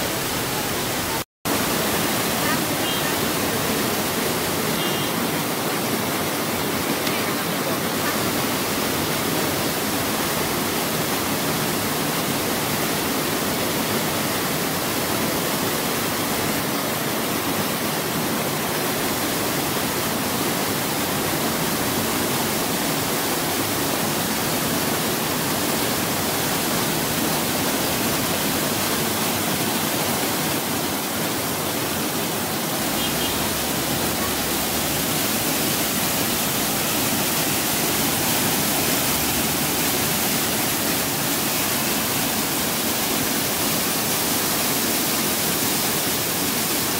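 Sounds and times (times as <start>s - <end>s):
waterfall crashing onto rocks: 0.0s - 46.9s.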